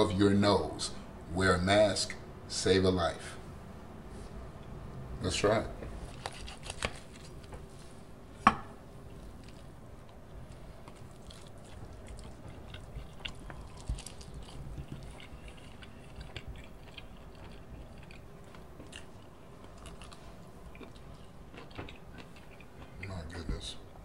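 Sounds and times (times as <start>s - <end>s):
person chewing chicken: 9.3s - 23.0s.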